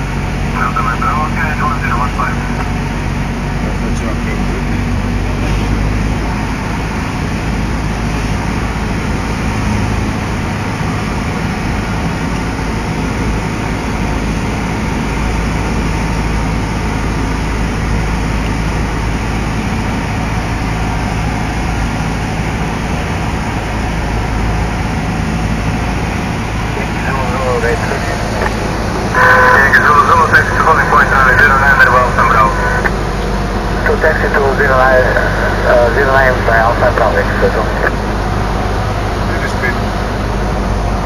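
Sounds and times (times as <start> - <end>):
airplane engine drone: 0.0 - 41.0.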